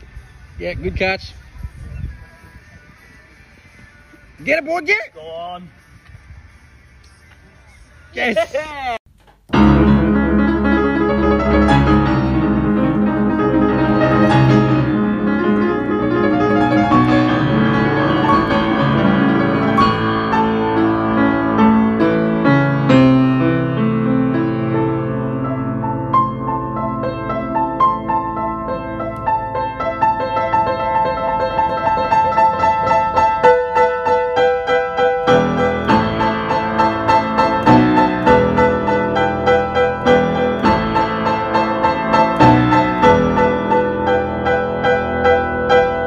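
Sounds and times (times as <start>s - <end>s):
solo piano: 9.5s - 46.0s.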